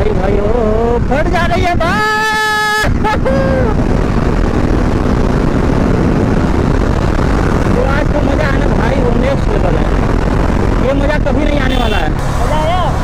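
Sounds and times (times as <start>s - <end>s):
wind rush: 0.0s - 13.0s
motorcycle engine running: 3.5s - 13.0s.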